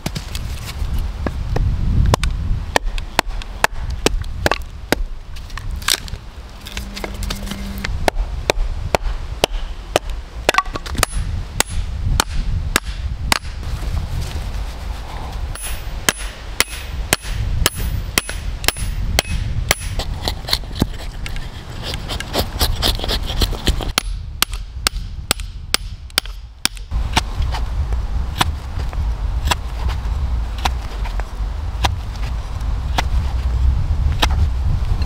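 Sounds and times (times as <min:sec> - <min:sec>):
hammer striking metal tube: 0:15.6 - 0:20.0.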